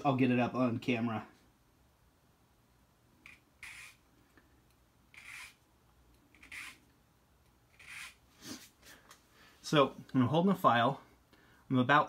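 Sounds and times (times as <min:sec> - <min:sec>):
needle file rasping on key: 0:03.3 - 0:04.0, 0:05.1 - 0:05.6, 0:06.3 - 0:06.8, 0:07.7 - 0:08.2.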